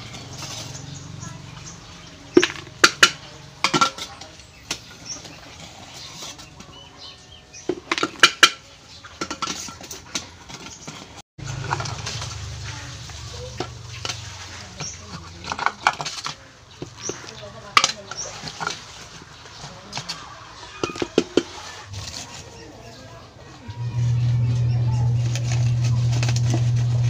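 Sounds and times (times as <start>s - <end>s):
tin can and scraper clinking: 2.3s - 5.4s, 7.5s - 12.7s, 13.4s - 19.2s
steady low hum: 23.7s - 27.0s.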